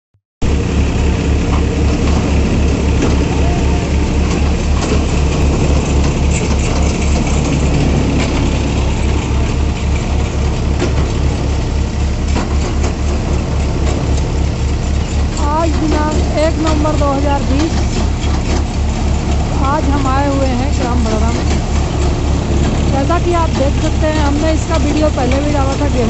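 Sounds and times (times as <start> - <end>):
thresher running: 0.4 - 26.0
clicks and rattles from drum: 4.2 - 19.6.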